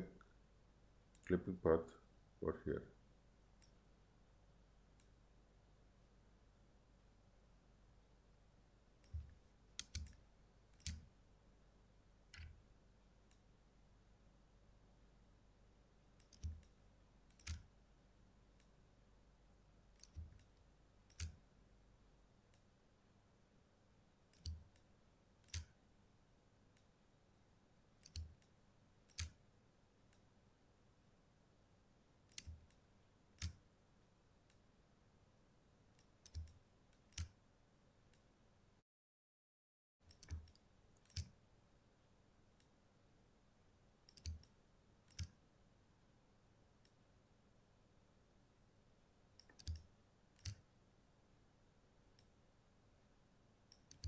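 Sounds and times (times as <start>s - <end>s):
computer mouse clicking: 9.0s - 11.1s, 12.3s - 12.6s, 16.2s - 17.7s, 19.9s - 21.4s, 24.3s - 25.8s, 28.0s - 28.5s, 29.1s - 29.4s, 32.3s - 32.8s, 33.4s - 33.6s, 36.0s - 37.4s, 40.1s - 41.4s, 44.0s - 45.4s, 49.4s - 50.6s, 53.7s - 54.0s.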